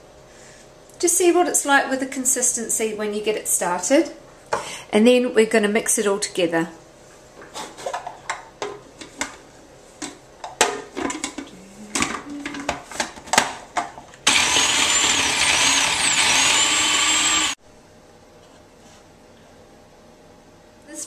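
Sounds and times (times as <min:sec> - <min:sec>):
food processor motor whining: 0:14.2 - 0:17.6.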